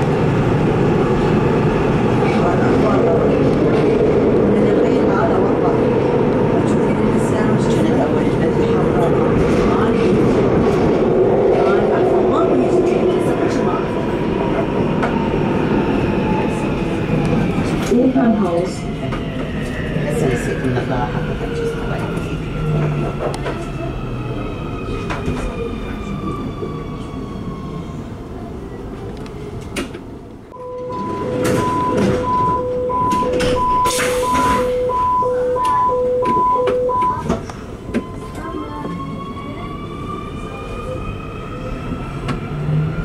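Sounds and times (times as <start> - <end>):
door-closing warning beeps: 30.6 - 38.3.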